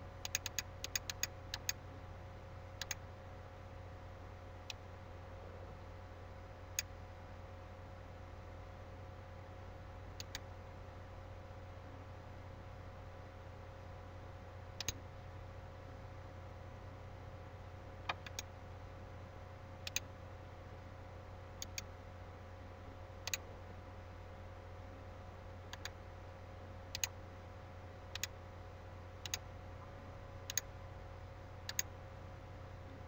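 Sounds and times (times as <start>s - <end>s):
low electrical hum: 0.0s - 33.0s
mouse buttons clicking: 0.2s - 1.8s, 2.8s - 3.0s, 10.2s - 10.4s, 14.8s - 15.0s, 18.1s - 18.5s, 19.8s - 20.1s, 21.6s - 21.9s, 25.7s - 26.0s, 26.9s - 27.1s, 29.2s - 29.4s, 30.5s - 30.7s, 31.7s - 31.9s.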